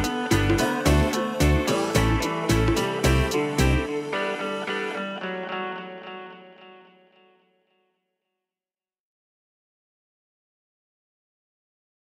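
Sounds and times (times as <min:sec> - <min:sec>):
music with steady bass beat: 0:00.0 - 0:03.9.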